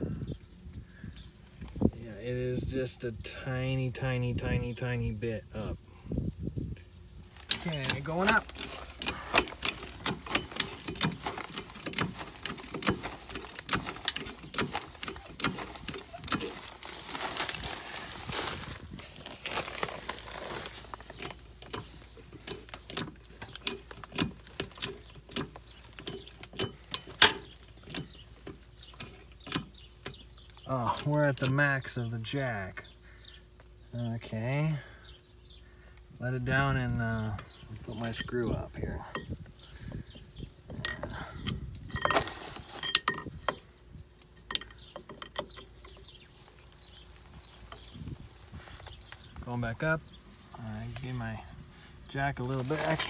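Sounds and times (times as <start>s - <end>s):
rustling: 6.8s - 30.6s, 40.6s - 53.0s
hydraulic jack clicking: 7.3s - 17.7s, 20.9s - 31.6s.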